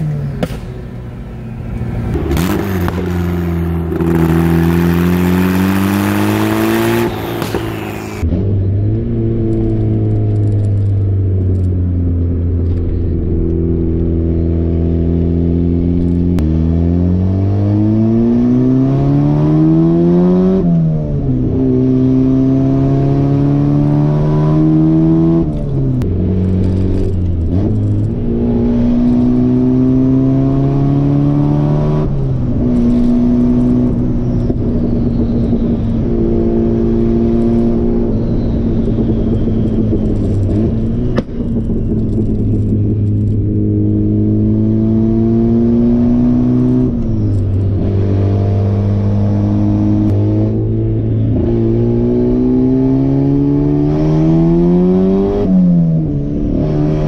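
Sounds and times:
car engine revving through gears: 2.0s - 57.0s.

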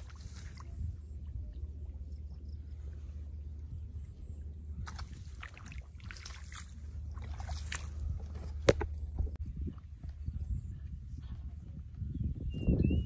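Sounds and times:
splashing in muddy water: 0.0s - 9.4s
steady low rumble: 0.0s - 13.0s.

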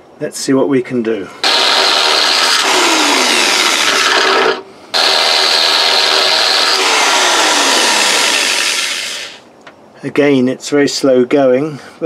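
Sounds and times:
electric drill cutting steel: 1.4s - 9.4s.

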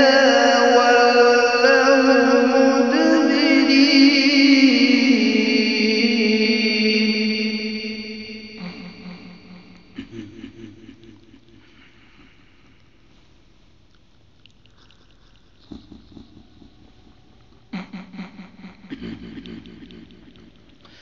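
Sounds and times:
voice over reverberant sound system: 0.0s - 12.0s, 17.7s - 21.0s.

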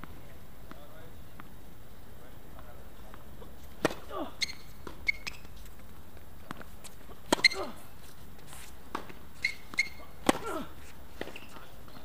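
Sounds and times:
racket hitting tennis ball: 3.7s - 5.6s, 6.4s - 7.8s, 8.9s - 11.7s
sneakers squeaking: 3.7s - 12.0s
tennis ball bouncing: 3.8s - 7.8s, 8.9s - 12.0s.

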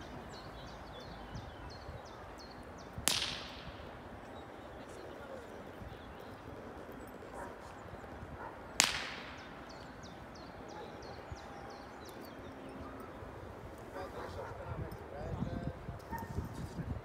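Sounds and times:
gunshot crack: 3.1s - 3.8s, 8.8s - 9.5s.

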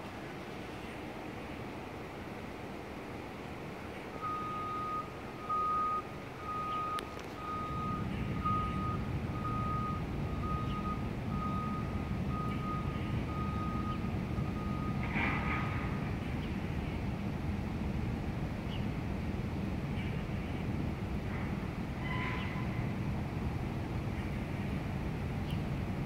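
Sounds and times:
low engine rumble: 0.0s - 26.0s
reversing alarm beeping: 4.2s - 15.0s.

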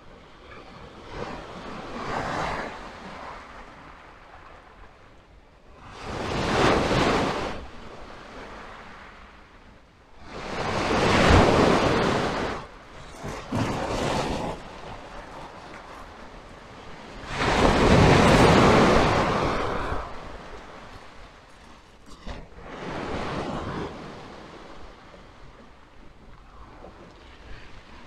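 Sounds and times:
waves washing on shingle: 10.6s - 24.1s.

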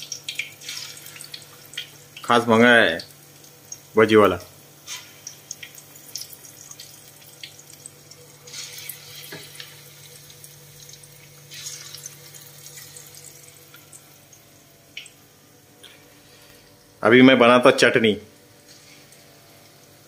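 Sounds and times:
oil crackles and pops: 0.0s - 2.4s, 4.6s - 15.2s
food deep-frying in hot oil: 0.0s - 17.0s, 18.3s - 20.0s.

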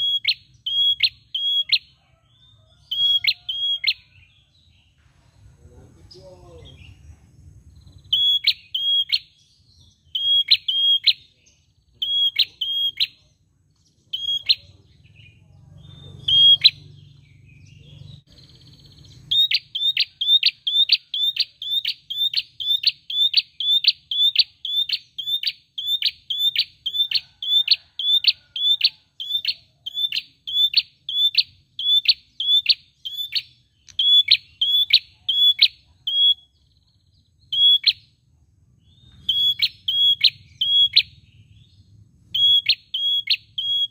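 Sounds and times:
bird sharp high call: 12.0s - 13.3s, 16.1s - 16.9s.

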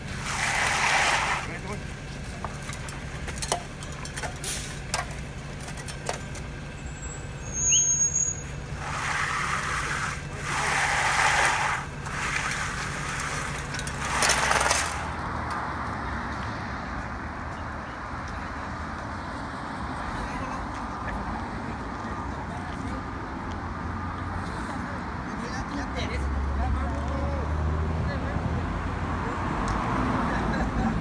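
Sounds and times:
truck engine hum: 0.0s - 22.6s
wet concrete rushing down chute: 0.2s - 1.6s.

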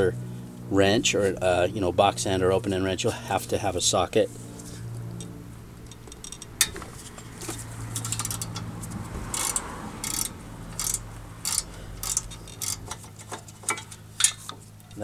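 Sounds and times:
ratchet clicking: 5.8s - 6.8s, 7.9s - 8.7s, 9.3s - 14.5s.

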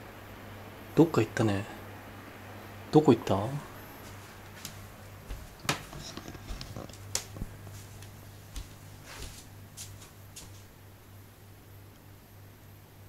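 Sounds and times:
low steady hum: 0.0s - 13.0s
footsteps on wooden floor: 4.0s - 10.7s.

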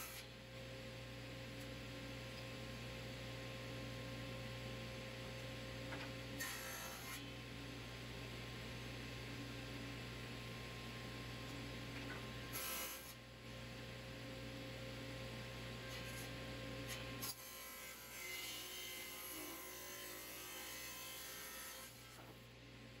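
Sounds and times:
saw blade cutting wood: 6.4s - 7.2s, 12.5s - 13.2s.

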